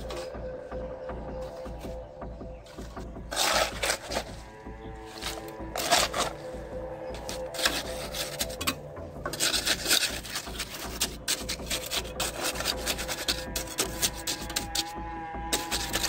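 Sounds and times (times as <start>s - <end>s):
trowel scraping wet concrete: 2.7s - 16.0s.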